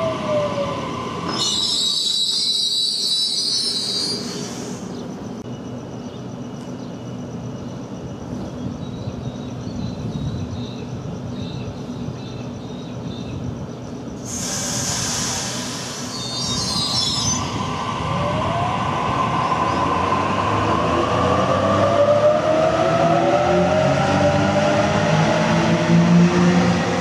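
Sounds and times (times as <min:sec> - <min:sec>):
train rail noise: 0:00.0 - 0:27.0
air hiss: 0:14.2 - 0:16.9.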